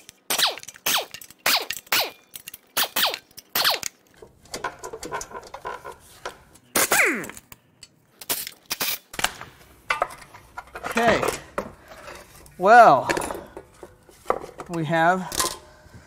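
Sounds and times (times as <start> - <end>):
impact wrench bursts: 0.3 - 2.2, 2.8 - 3.9.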